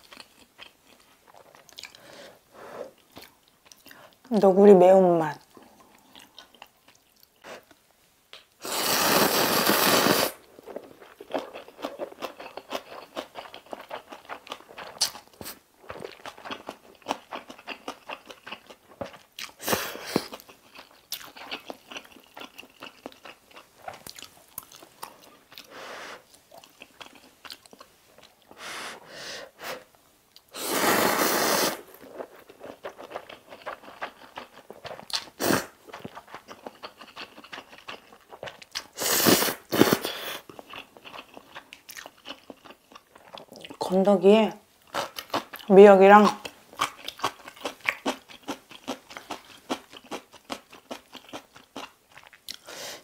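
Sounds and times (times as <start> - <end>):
slurping noodles: 8.6 - 10.4, 30.6 - 32.1
wet chewing: 9.6 - 25.7, 26.5 - 28.6, 31.9 - 39.0, 39.7 - 43.8, 44.9 - 52.7.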